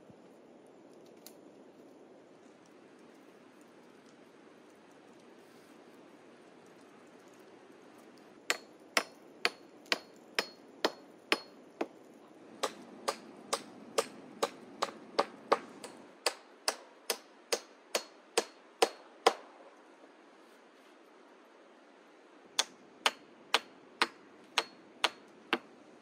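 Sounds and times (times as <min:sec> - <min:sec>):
axe striking wooden pole: 0:08.5 - 0:11.5, 0:12.6 - 0:19.4, 0:22.6 - 0:25.7.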